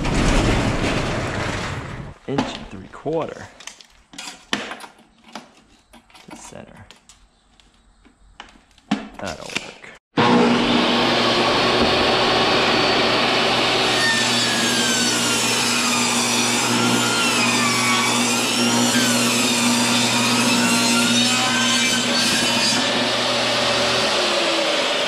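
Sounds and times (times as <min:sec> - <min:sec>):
table saw ripping wood: 0:00.0 - 0:02.6, 0:09.2 - 0:25.0.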